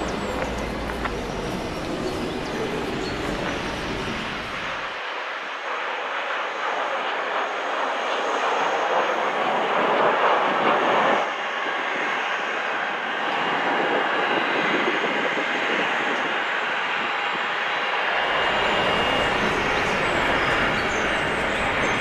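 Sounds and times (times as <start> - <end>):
jet roar: 0.0 - 22.0.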